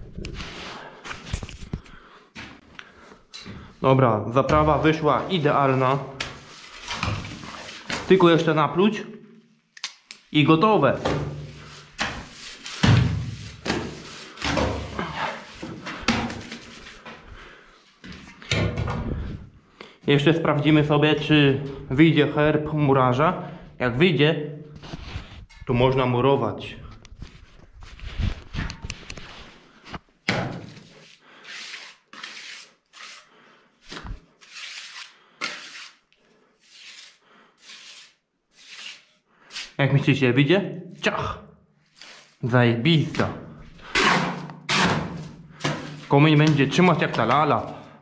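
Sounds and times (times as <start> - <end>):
shovel scraping wet mortar: 30.7 - 33.3, 34.0 - 39.8, 43.8 - 46.1.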